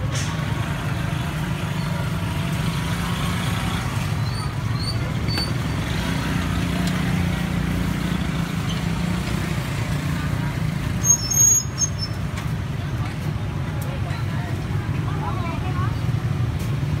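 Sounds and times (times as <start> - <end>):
road traffic rumble: 0.0 - 17.0
brief high squeaks: 11.0 - 12.2.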